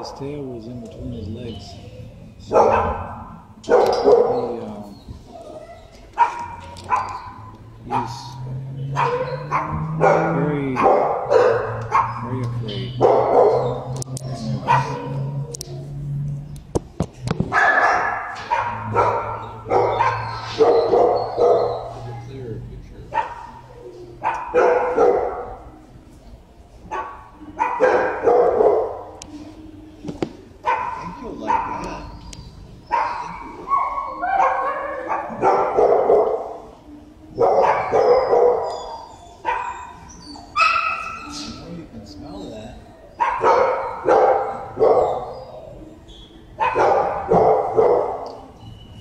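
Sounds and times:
dogs barking: 0.0 - 16.3, 17.3 - 29.4, 30.4 - 49.0.

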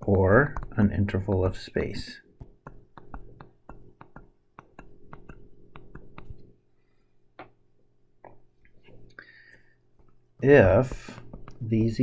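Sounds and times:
stylus tapping on tablet screen: 0.0 - 6.5, 10.8 - 11.6.

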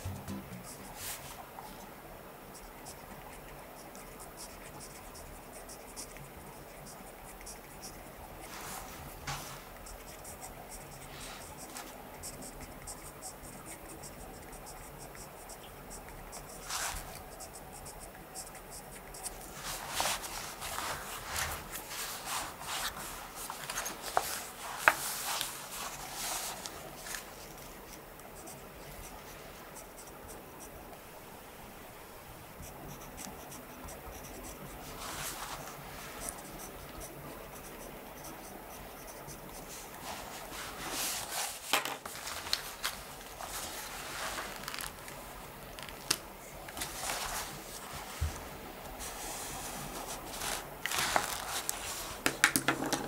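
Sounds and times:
pen scratching on paper: 0.0 - 1.2, 2.5 - 27.2, 27.9 - 30.8, 32.5 - 40.2.

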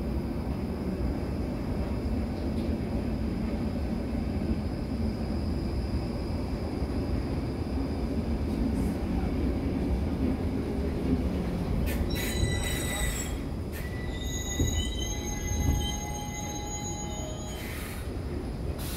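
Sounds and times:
train braking rumble: 11.5 - 18.9
high-pitched brake squeal: 11.9 - 18.1.

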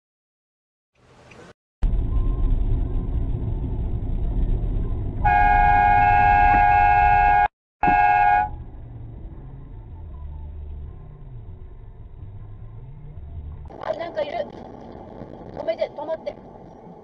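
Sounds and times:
car driving on road: 1.0 - 17.0
car horn honking: 5.2 - 8.6.

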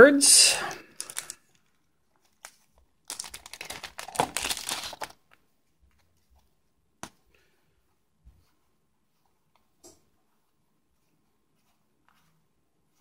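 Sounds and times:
plastic bag crinkling: 0.9 - 5.4.

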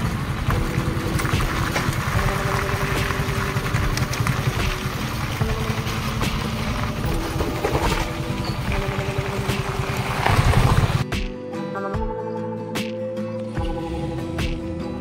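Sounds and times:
vehicle engine rumbling: 0.0 - 11.0.

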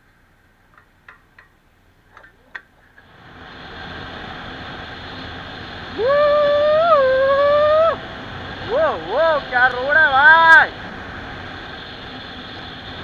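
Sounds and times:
motorcycle engine: 2.0 - 13.0.

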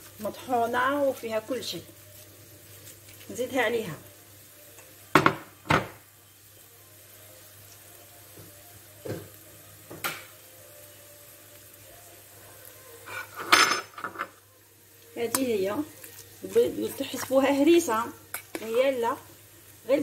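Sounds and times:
dishes and utensils knocking: 5.2 - 6.0, 13.4 - 14.4.

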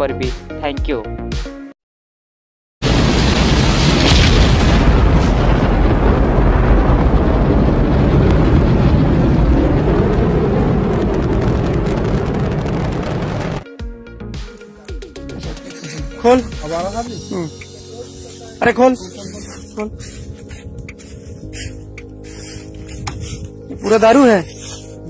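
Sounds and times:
rocket engines rumbling: 4.6 - 13.6.

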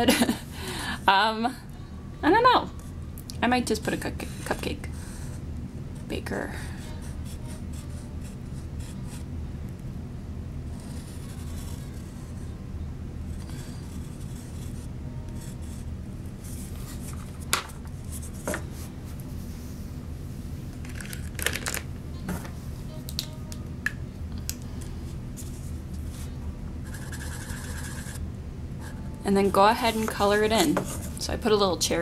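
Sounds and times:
steady low hum: 0.0 - 32.0
pencil scratching on paper cup: 6.8 - 9.2, 10.7 - 12.5, 13.3 - 15.9, 26.8 - 28.2.

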